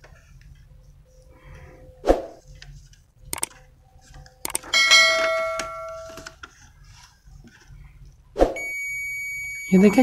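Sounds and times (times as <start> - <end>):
bell chime: 4.8 - 6.2.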